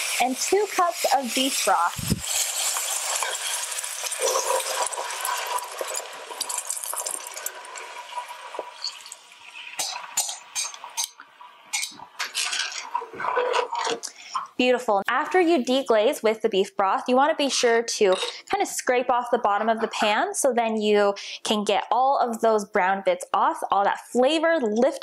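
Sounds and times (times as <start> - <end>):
metal tongs scraping a pan: 0.0 - 8.0
broth sizzling in a hot pan: 0.0 - 12.5.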